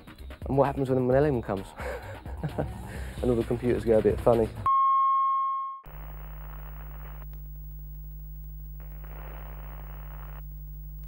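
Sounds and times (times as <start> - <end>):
low electrical hum: 5.9 - 11.0
tv static hiss: 5.9 - 11.0.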